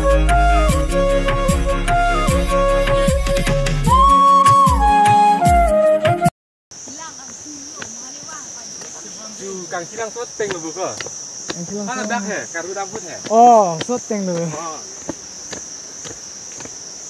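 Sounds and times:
insects buzzing in chorus: 0:06.7 - 0:17.0
people's voices: 0:06.9 - 0:15.0.

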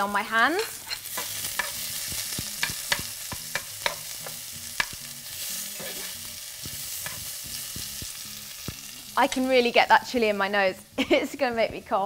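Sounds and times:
vegetables sizzling in oil: 0:00.0 - 0:12.0
utensil stirring and scraping pan: 0:00.6 - 0:08.2.

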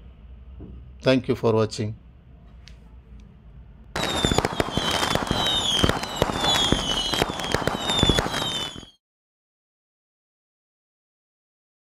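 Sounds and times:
fireworks crackling and popping: 0:04.0 - 0:09.0
short falling whistles: 0:04.0 - 0:09.0.

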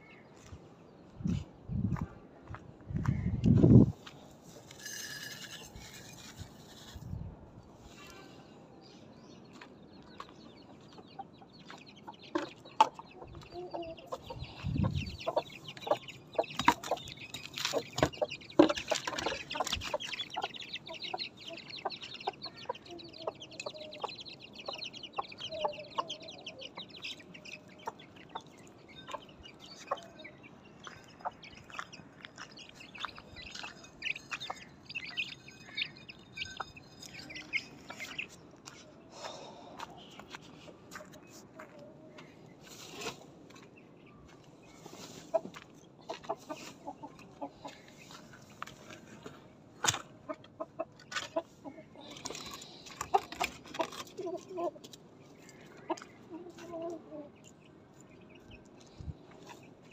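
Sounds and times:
chicks peeping: 0:09.4 - 0:49.4, 0:50.2 - 0:59.9
hen clucking: 0:10.6 - 0:38.4, 0:45.0 - 0:57.6.

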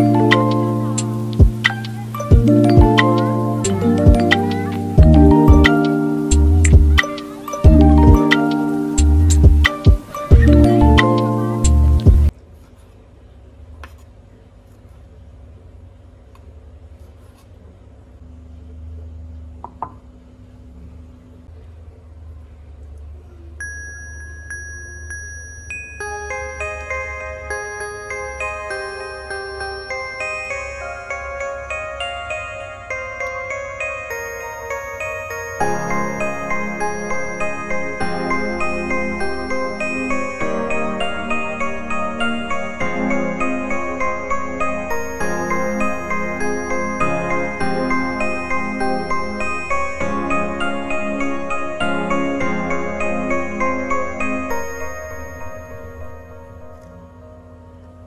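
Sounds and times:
soft chime-like music: 0:00.0 - 0:12.3, 0:23.6 - 0:58.0
ceramic bowl knocking on wood: 0:19.6 - 0:20.0.

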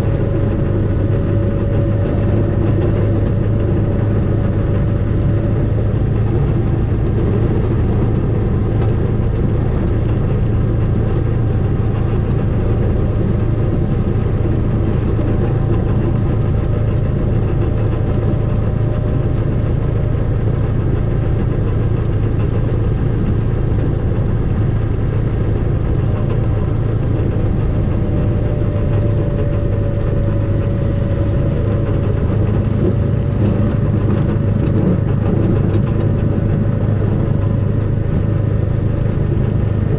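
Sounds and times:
engine low hum: 0:00.0 - 0:39.9
faint engine whine: 0:00.0 - 0:39.9.

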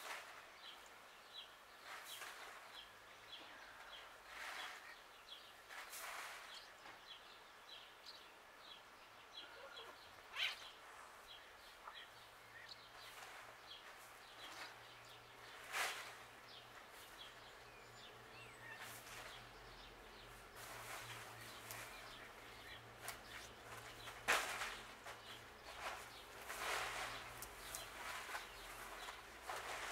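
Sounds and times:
small bird chirping: 0:09.4 - 0:29.9.

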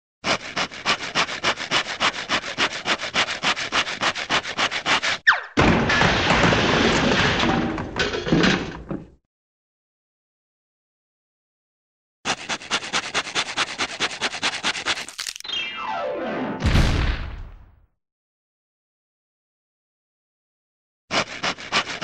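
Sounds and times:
saw rasping through wood: 0:00.2 - 0:05.2, 0:12.2 - 0:15.4, 0:21.1 - 0:22.0
falling whistle: 0:05.2 - 0:05.6
crash of tumbling debris: 0:05.6 - 0:08.9.

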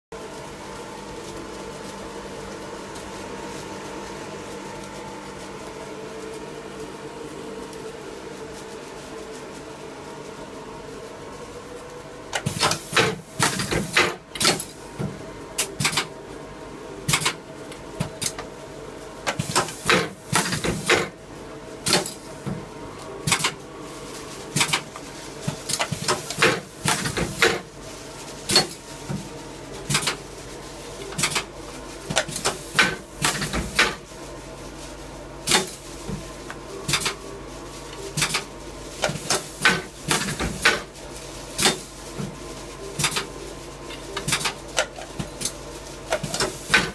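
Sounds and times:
binding machine humming: 0:19.2 - 0:34.2.

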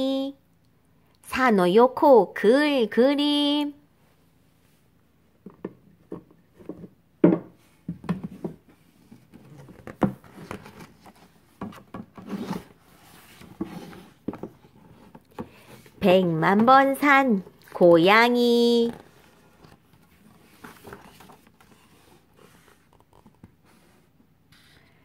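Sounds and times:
paper pages rustling: 0:09.1 - 0:16.0, 0:18.8 - 0:24.0.

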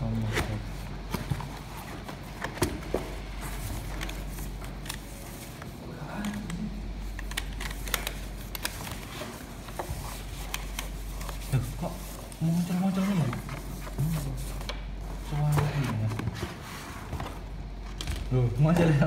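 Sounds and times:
wrapping sheet rustling and crinkling: 0:07.5 - 0:17.4.

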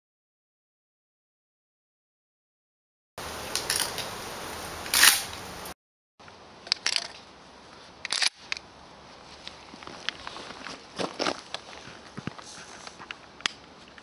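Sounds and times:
steady hiss: 0:03.2 - 0:06.6.

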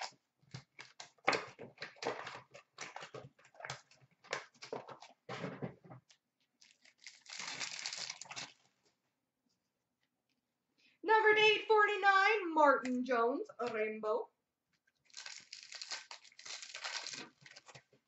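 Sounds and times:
wrappers crinkling and rustling: 0:06.4 - 0:08.8, 0:15.0 - 0:18.0.

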